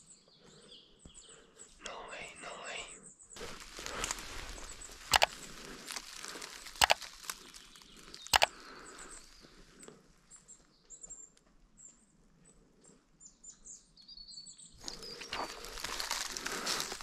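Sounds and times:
small birds chirping: 0.0s - 17.0s
rustling: 3.4s - 9.4s, 14.8s - 17.0s
sharp clicks: 4.0s - 8.6s.

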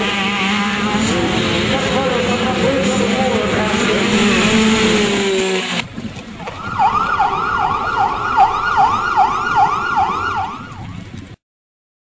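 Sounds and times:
siren yelping: 6.4s - 11.0s.

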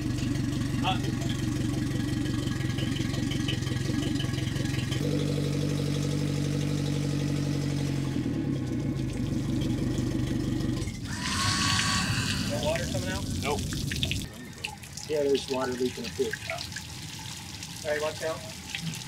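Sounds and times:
outboard motor idling: 0.0s - 13.8s.

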